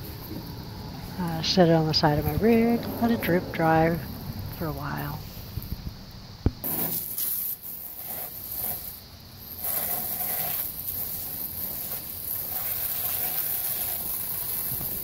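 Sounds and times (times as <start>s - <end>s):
hose nozzle spraying water: 6.6s - 15.0s.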